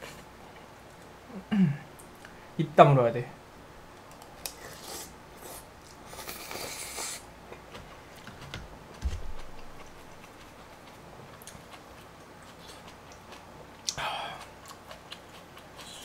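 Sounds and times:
chewing with wet clicks: 9.7s - 16.0s.

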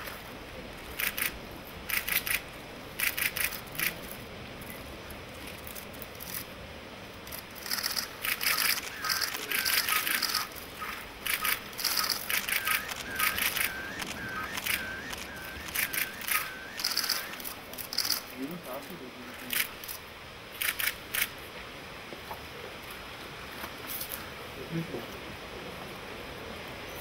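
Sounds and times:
camera shutters firing: 7.6s - 10.5s.

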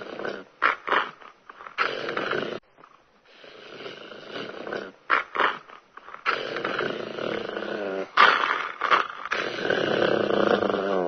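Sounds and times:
person snoring: 0.0s - 0.5s, 1.8s - 2.6s, 3.3s - 5.0s, 6.2s - 11.0s.

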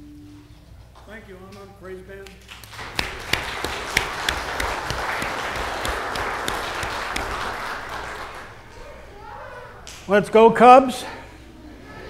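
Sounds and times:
congregation applauding: 2.4s - 8.7s.

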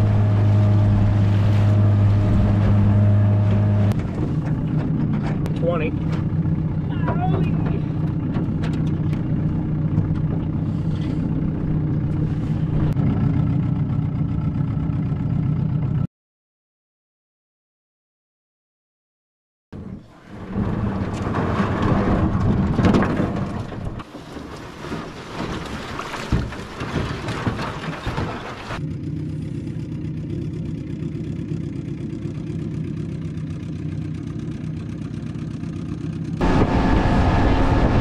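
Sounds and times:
outboard motor running: 0.0s - 16.0s, 28.7s - 38.0s
hull knocking and scraping on rocks: 7.0s - 11.3s, 20.4s - 28.8s.

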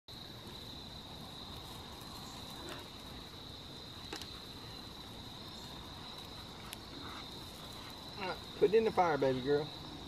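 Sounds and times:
insects trilling: 0.1s - 10.0s
wood fire pops: 3.9s - 8.6s.

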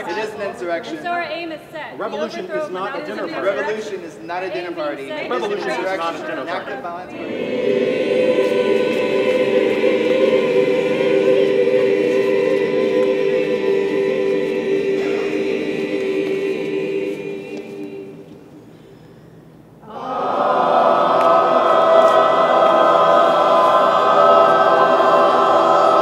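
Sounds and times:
choir holding a chord: 7.1s - 18.9s, 19.8s - 26.0s.

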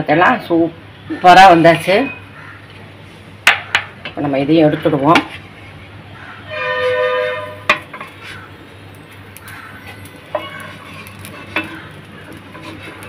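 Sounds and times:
wooden spatula scraping griddle: 6.5s - 8.6s, 9.4s - 13.0s.

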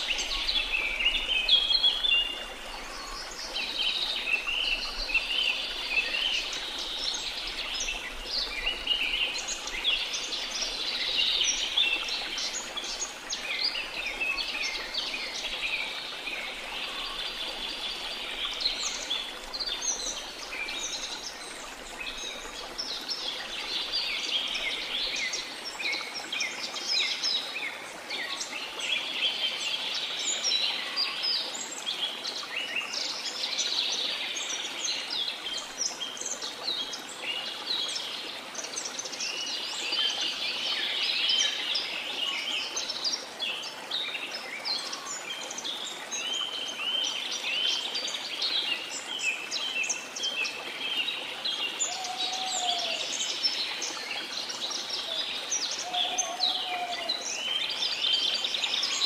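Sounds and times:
birds chirping and calling: 51.8s - 53.1s, 55.0s - 57.8s.

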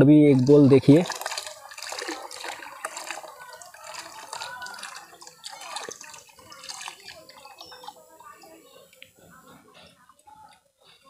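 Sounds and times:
water splashing and trickling: 0.0s - 8.9s
gurgling bubbles: 0.2s - 7.9s.

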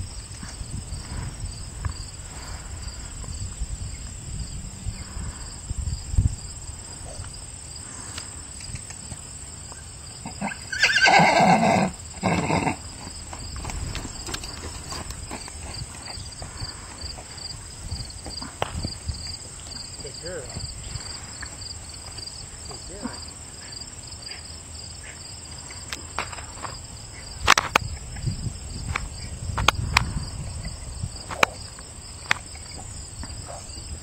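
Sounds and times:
horse whinnying: 10.2s - 12.8s
hooves thudding on dirt: 12.1s - 23.8s.

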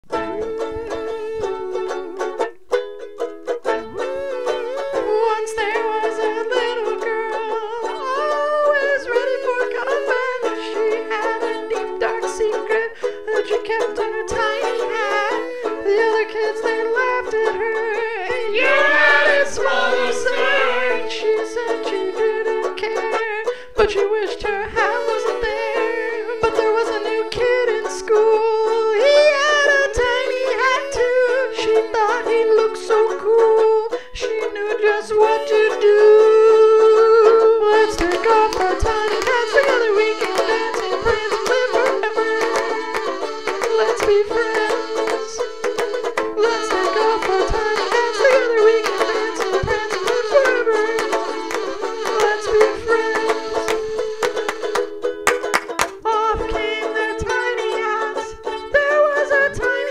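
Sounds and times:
plucked string instrument: 0.0s - 59.9s
high voice singing: 13.4s - 23.2s, 23.8s - 33.2s, 34.2s - 54.8s.

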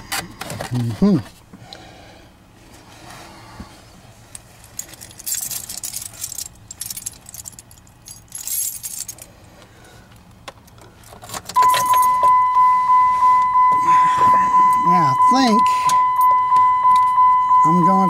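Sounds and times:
metallic jingling and clicking: 4.6s - 9.3s.

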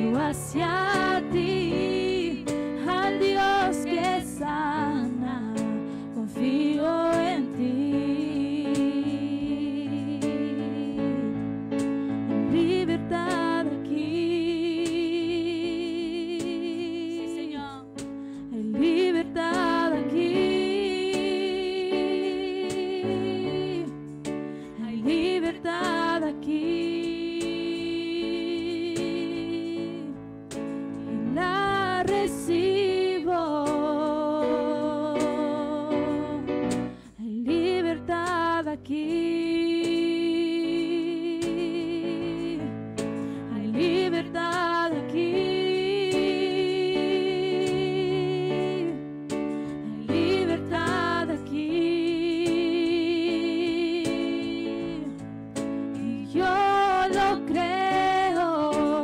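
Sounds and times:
woman singing with vibrato: 0.0s - 11.4s, 18.5s - 23.9s, 24.8s - 30.1s, 43.5s - 49.0s, 49.8s - 55.2s, 56.0s - 59.0s.

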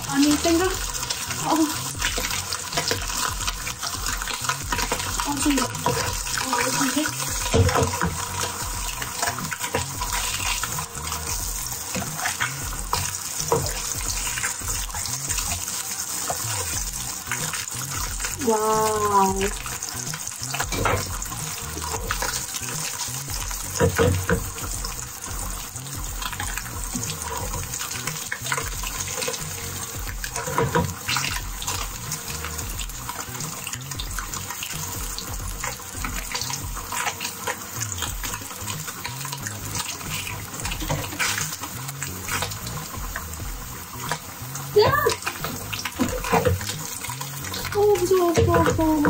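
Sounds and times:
meat sizzling in oil: 0.0s - 49.0s
oil crackling and popping: 0.0s - 49.0s.

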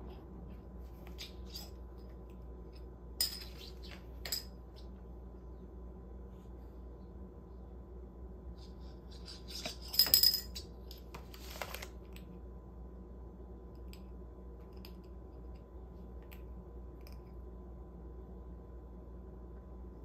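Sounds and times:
bottle cap clattering on tile: 3.2s - 3.6s, 4.2s - 4.5s, 9.8s - 10.6s.

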